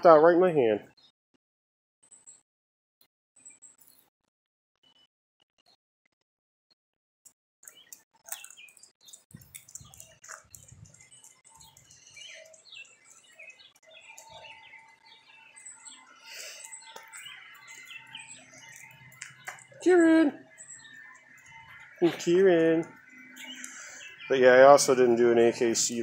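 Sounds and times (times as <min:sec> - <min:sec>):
clicks and rustles: 0:07.6 - 0:14.5, 0:16.6 - 0:19.8
small birds chirping: 0:07.6 - 0:26.0.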